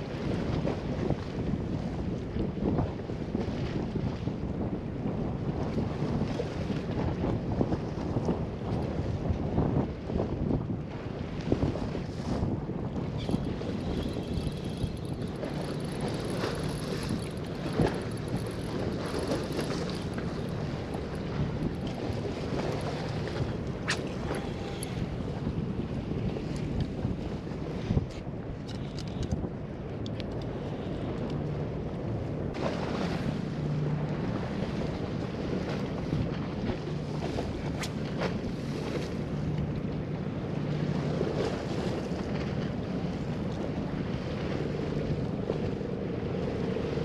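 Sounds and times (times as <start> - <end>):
sea wash: 0.0 - 47.0
wind rumbling on microphone: 0.0 - 47.0
low hum: 12.7 - 47.0.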